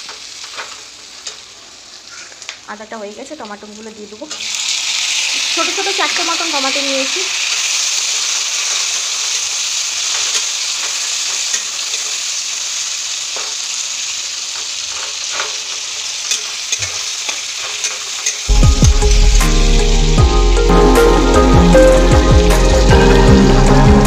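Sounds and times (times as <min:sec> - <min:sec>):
tomatoes sizzling in oil: 0:00.0 - 0:24.0
background music: 0:18.5 - 0:24.0.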